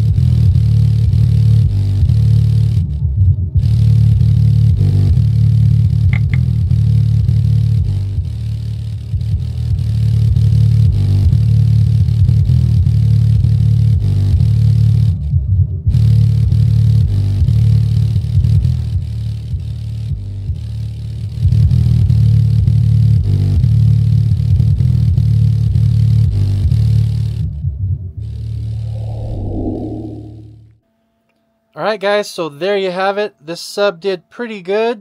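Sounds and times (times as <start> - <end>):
subwoofer deep bass pulsing: 0.0 - 23.3, 27.3 - 30.7.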